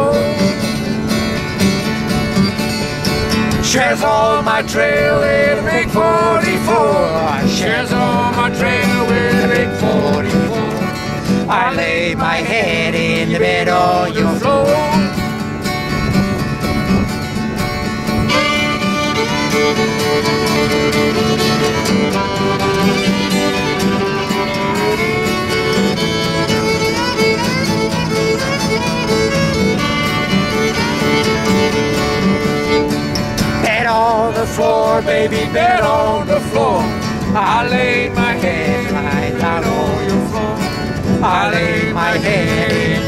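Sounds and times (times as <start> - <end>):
fiddle melody: 0.0 - 43.0
strummed acoustic guitar: 0.0 - 43.0.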